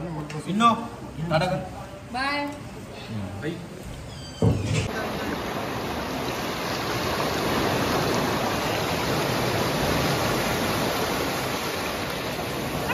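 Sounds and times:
surf breaking on a sandy beach: 4.9 - 12.9.

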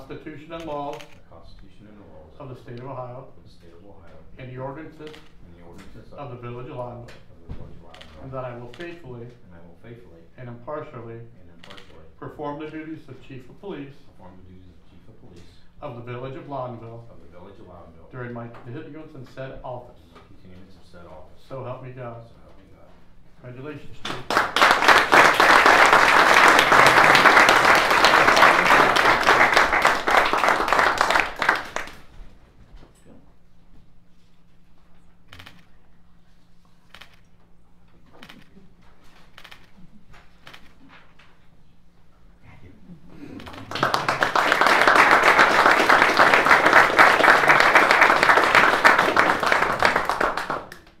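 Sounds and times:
audience applauding: 24.1 - 32.1, 43.4 - 51.0.

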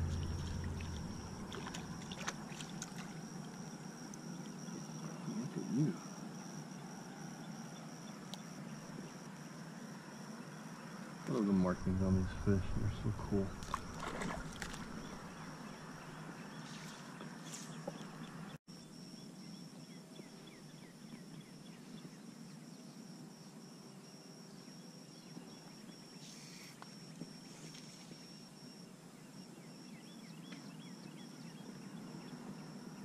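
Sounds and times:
wind and water: 0.0 - 5.6, 11.1 - 18.5
insect trill: 0.0 - 33.0.

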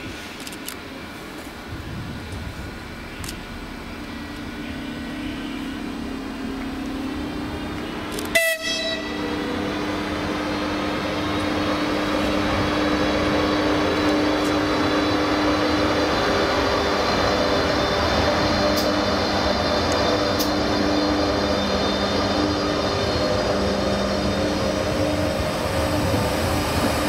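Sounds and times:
electric locomotive motors humming: 0.0 - 27.0
train horn blast: 7.8 - 9.5.

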